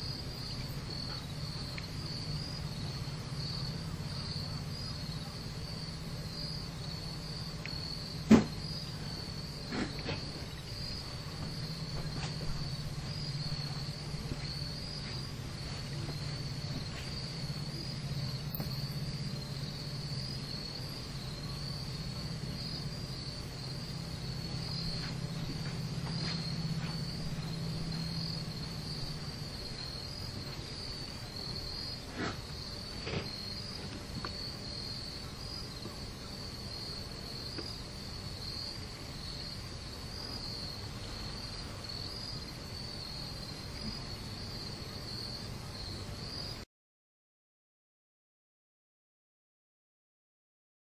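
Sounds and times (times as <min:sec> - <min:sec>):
high insect chorus: 0:00.0 - 0:46.6
low steady hum: 0:00.0 - 0:46.6.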